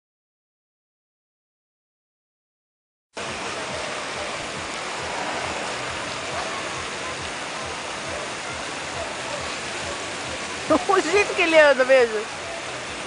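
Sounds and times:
faint crowd voices: 3.2s - 13.0s
steady rushing outdoor noise: 3.2s - 13.0s.

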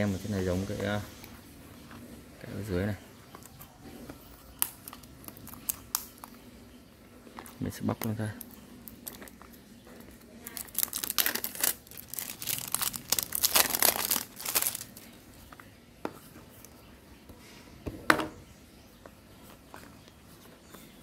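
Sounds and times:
plastic wrap crinkling: 4.4s - 6.4s, 7.4s - 15.2s.

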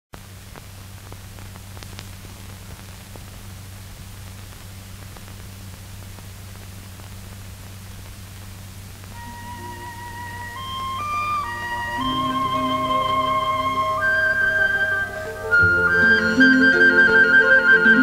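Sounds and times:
faint clicks and pops: 0.2s - 9.2s
film soundtrack hiss and hum: 0.2s - 18.0s.

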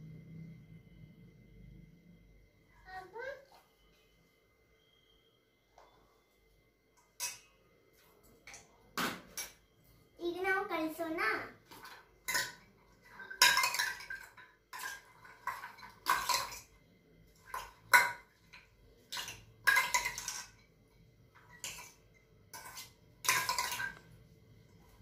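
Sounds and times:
spoon scraping a metal bowl: 21.4s - 24.0s.

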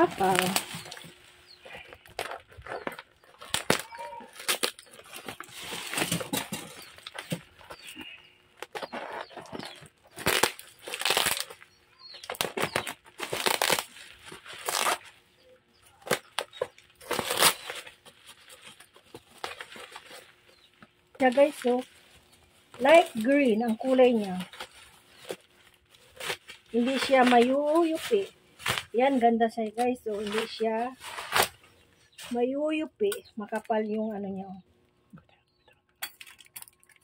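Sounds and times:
plastic and bubble wrap crinkling: 0.0s - 34.3s
scissors cutting plastic: 1.8s - 15.1s, 16.0s - 20.2s.

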